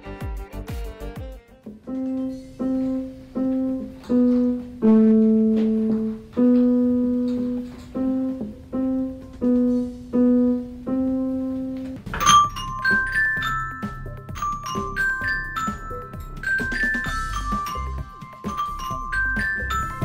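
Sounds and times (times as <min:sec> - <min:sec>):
electronic keyboard slow melody: 0:00.0 - 0:20.0
ringing glockenspiel notes: 0:12.0 - 0:20.0.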